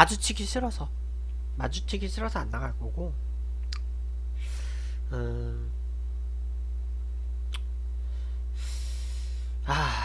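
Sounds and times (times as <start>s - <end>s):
low electrical hum: 0.0s - 10.0s
sharp click: 3.6s - 3.9s
man breathing in: 4.4s - 5.0s, 8.0s - 10.0s
man humming mm: 4.4s - 5.8s, 8.5s - 10.0s.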